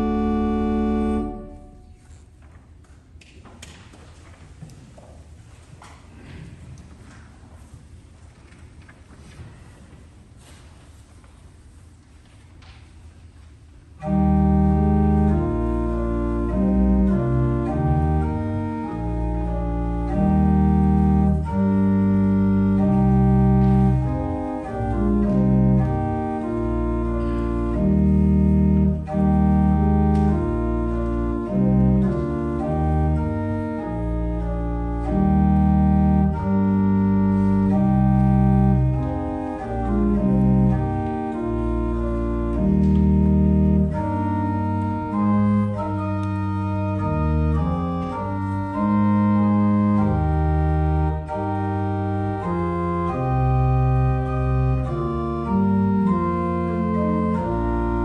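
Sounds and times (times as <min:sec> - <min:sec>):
pipe organ playing chords: 0:00.0 - 0:02.2, 0:14.0 - 0:58.0.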